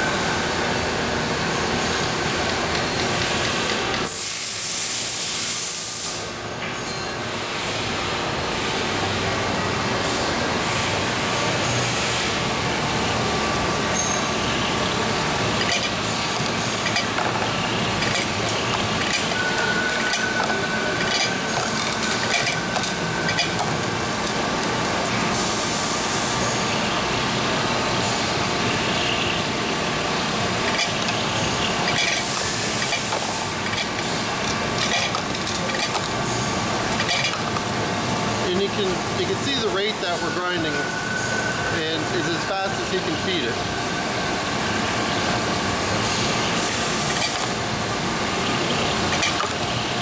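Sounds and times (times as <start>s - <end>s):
coolant hiss: 4.0s - 6.4s, 10.1s - 40.8s, 41.6s - 50.0s
grinding machine running: 10.5s - 50.0s.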